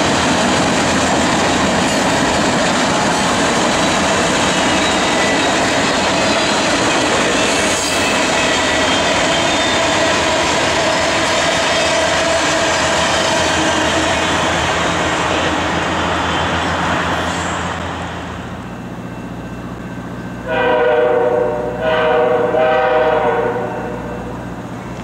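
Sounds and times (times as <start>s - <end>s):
train wheels rumbling on rail: 0.0s - 25.0s
locomotive air horn blasts: 20.4s - 24.4s.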